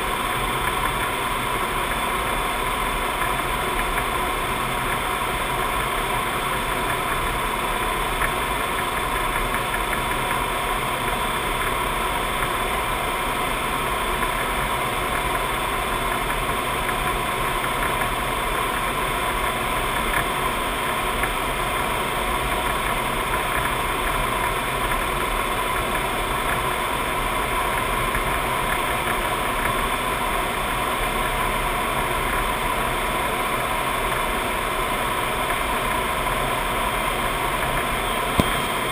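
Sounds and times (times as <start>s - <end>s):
faint steady whine: 0.0s - 38.9s.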